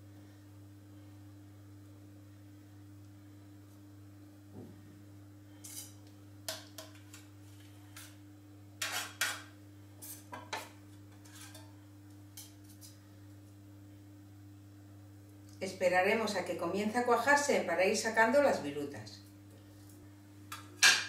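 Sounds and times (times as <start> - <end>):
metal spatula scraping stone: 8.8 - 10.3, 11.1 - 11.7.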